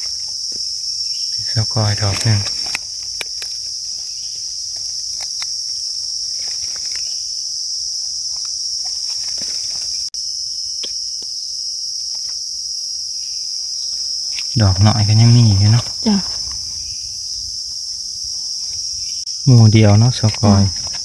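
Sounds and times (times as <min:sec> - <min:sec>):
high-pitched insect drone: 0:00.0 - 0:21.0
rustles and snaps of leaf litter: 0:01.8 - 0:10.1.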